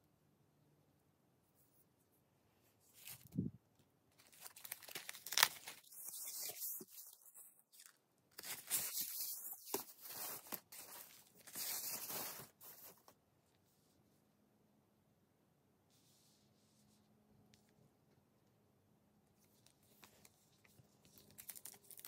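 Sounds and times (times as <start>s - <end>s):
foam packing wrap crinkling: 4.2s - 13.1s, 21.2s - 22.0s.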